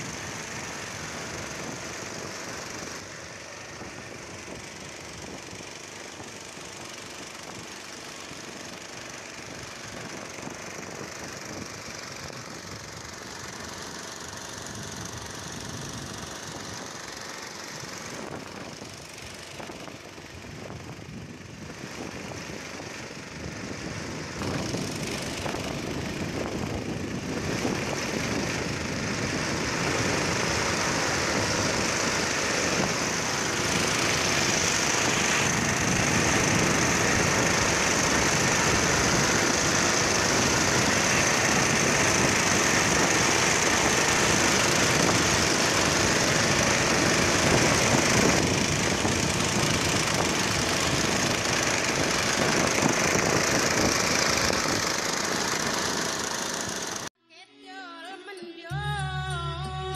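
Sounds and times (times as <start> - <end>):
boat engine running: 0.0 - 57.2, 58.7 - 59.9
wind on microphone: 18.1 - 55.2.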